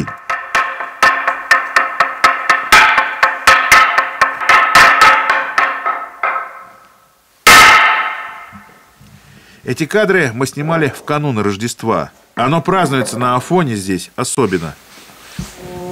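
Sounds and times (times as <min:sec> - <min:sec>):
mallet striking wooden beam: 0:00.0 - 0:06.8, 0:07.5 - 0:08.7.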